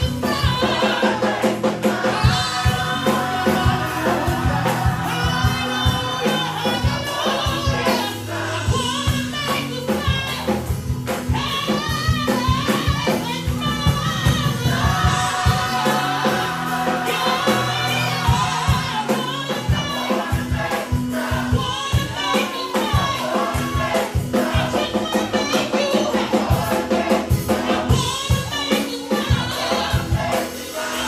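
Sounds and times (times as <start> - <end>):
bass notes: 0.0 - 22.2
drums: 0.0 - 31.0
gospel choir singing: 0.0 - 31.0.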